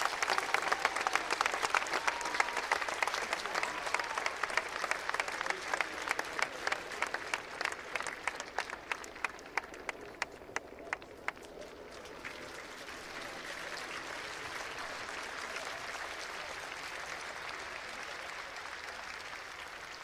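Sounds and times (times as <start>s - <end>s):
sharp claps: 0.0s - 11.5s
crowd applauding: 0.0s - 20.0s.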